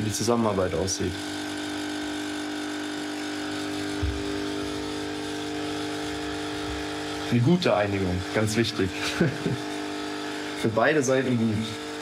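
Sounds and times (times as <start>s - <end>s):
small electric motor humming: 0.2s - 12.0s
low thump: 3.9s - 4.8s.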